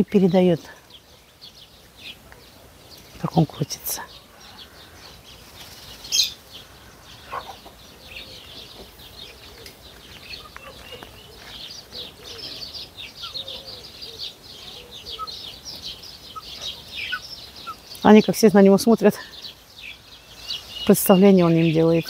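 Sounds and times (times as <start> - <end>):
high bird chirps: 2.9 - 22.0
hen clucking: 6.3 - 18.0.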